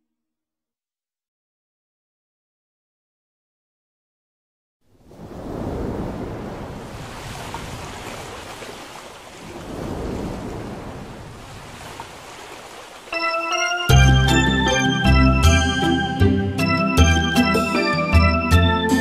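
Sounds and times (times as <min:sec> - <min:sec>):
ocean waves washing in: 0:04.9 - 0:15.2.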